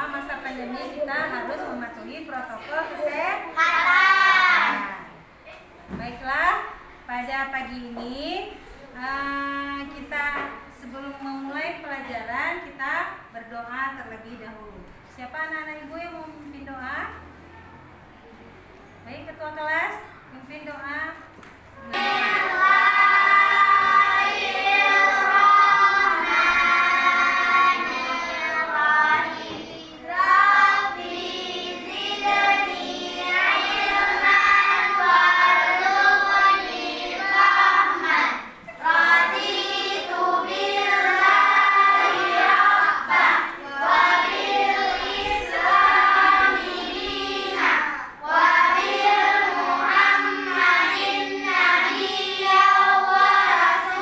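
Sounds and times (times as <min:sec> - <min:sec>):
group of voices chanting in unison: 0:03.6 - 0:05.2, 0:21.8 - 0:54.0.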